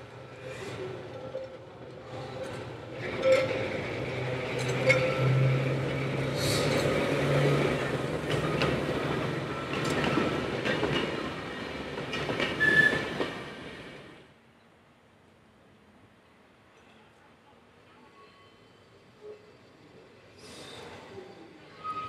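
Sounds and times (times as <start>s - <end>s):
tram wheels clicking over rail joints: 1.5s - 13.4s.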